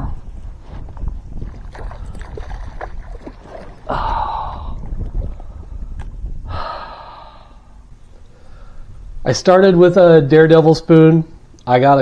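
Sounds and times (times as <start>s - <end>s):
wind rumble on microphone: 0.0s - 10.1s
water sounds: 0.3s - 6.6s.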